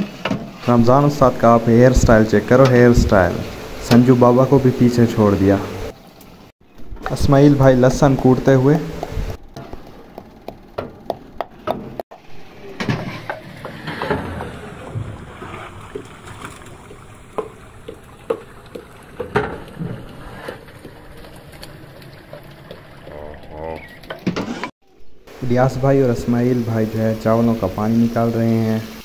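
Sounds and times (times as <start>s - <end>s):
metal ladle scraping pot: 12.7s - 16.7s
pestle pounding in mortar: 17.3s - 21.0s.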